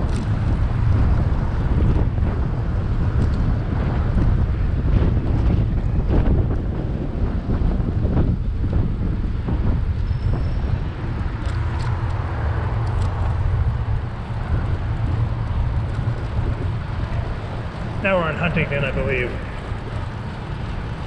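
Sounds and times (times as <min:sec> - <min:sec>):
city traffic noise: 0:00.0 - 0:21.0
wind rumbling on microphone: 0:00.0 - 0:21.0.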